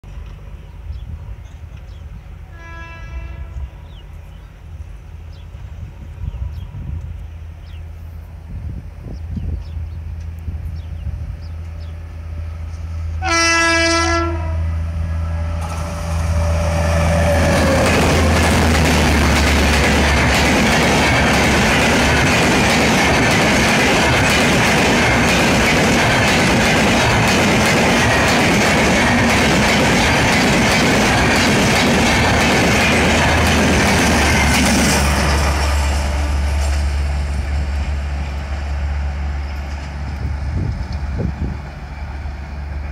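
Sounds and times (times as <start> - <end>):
train horn blast: 2.4 - 3.9, 13.1 - 18.4
train wheels clattering on rails: 15.6 - 38.6.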